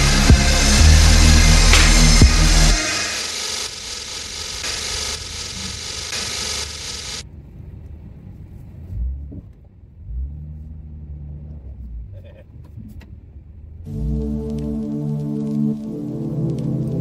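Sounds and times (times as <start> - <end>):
music: 0.0 - 3.3, 13.9 - 17.0
truck engine rumbling: 0.0 - 17.0.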